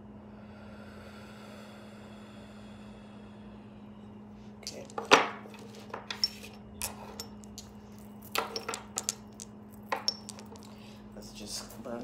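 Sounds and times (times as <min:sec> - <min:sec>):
faint steady hum: 0:00.0 - 0:12.0
knocks and clinks: 0:04.6 - 0:10.9
objects knocking on tabletop: 0:08.3 - 0:10.7.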